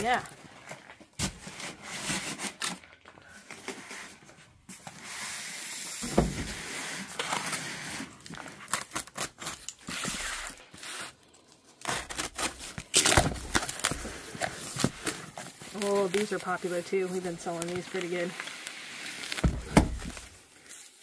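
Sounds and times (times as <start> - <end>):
tape tearing: 0.1 - 4.2, 5.8 - 21.0
cardboard rustling and scraping: 3.4 - 11.2, 11.8 - 21.0
thump: 6.0 - 6.6, 19.4 - 20.1
knife slicing packing tape: 6.7 - 11.2, 11.8 - 16.4.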